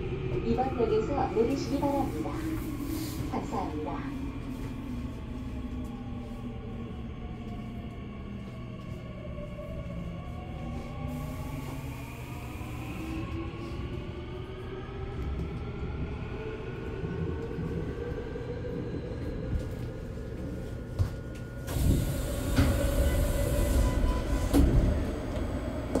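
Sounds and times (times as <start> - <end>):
train rumbling: 0.0 - 26.0
train doors sliding open: 21.6 - 26.0.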